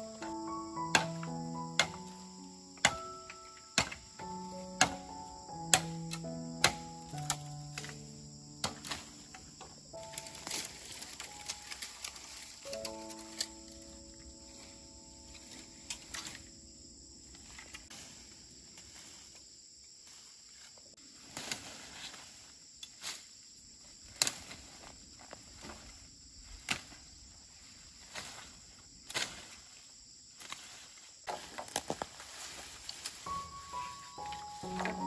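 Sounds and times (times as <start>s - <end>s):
insect chirring: 0.0s - 21.2s, 22.0s - 35.0s
rustling and snapping stems: 0.9s - 16.5s, 24.0s - 27.1s, 29.0s - 29.7s, 30.4s - 33.5s.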